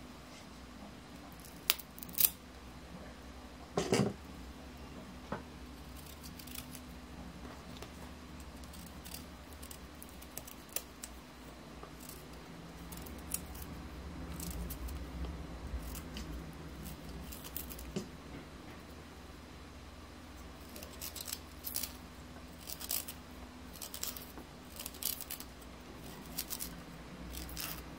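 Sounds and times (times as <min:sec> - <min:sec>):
low steady hum: 0:00.0 - 0:27.9
knife scraping and cutting ginger: 0:05.8 - 0:06.9, 0:08.4 - 0:11.2, 0:11.9 - 0:15.0, 0:15.8 - 0:18.1, 0:20.6 - 0:27.9.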